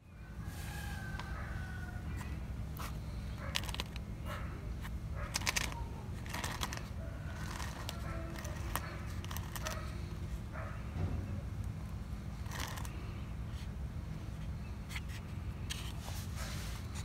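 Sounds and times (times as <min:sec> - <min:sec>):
steady low hum: 0:00.0 - 0:17.0
rooster crowing faintly: 0:00.1 - 0:02.5, 0:06.6 - 0:09.9
short rustling or scraping: 0:14.9 - 0:17.0.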